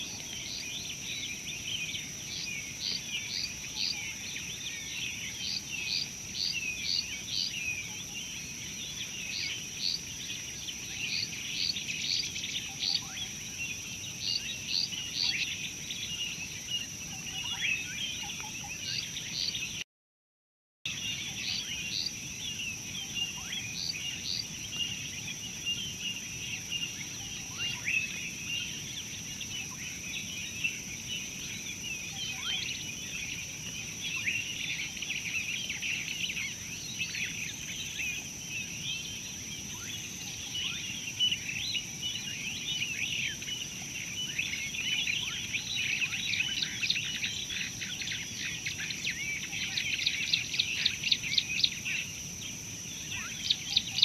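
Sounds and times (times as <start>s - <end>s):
small birds chirping: 20.9s - 54.0s.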